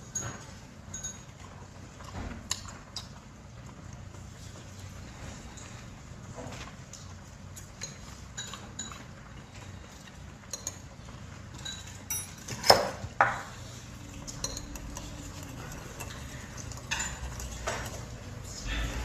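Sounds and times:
cutlery and dishes clinking: 11.5s - 13.5s.

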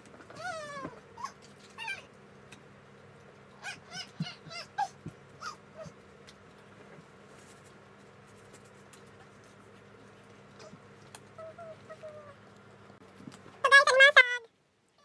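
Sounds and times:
girl squeaking: 3.6s - 6.0s.

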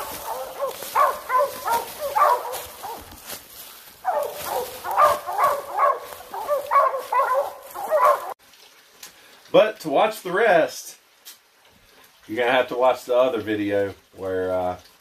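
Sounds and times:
hounds barking and baying: 0.0s - 8.4s.

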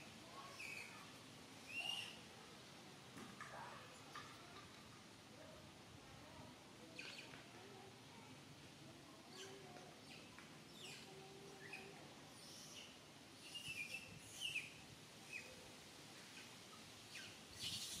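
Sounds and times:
faint bird chirps: 0.3s - 2.3s, 6.9s - 7.4s, 9.3s - 15.6s, 16.3s - 18.0s.

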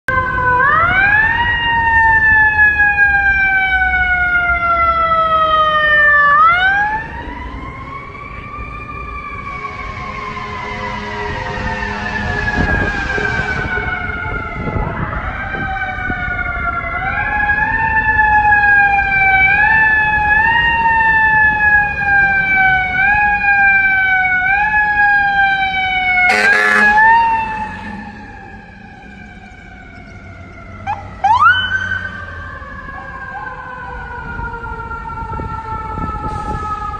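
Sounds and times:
siren wailing: 0.1s - 36.9s
second siren whooping: 18.1s - 30.0s, 30.7s - 36.9s
harsh horn blast: 26.2s - 28.8s.

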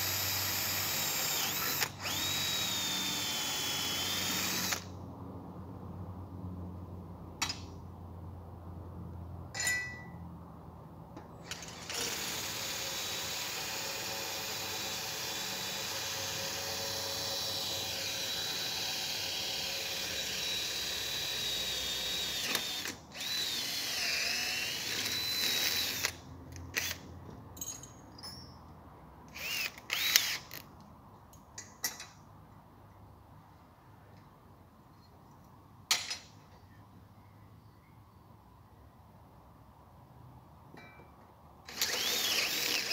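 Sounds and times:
cordless drill whining: 0.0s - 4.9s, 11.5s - 26.2s, 26.8s - 27.0s, 29.3s - 30.6s, 41.7s - 42.9s
metallic clinks of handled parts: 9.5s - 10.2s, 27.5s - 28.8s, 31.3s - 32.2s.

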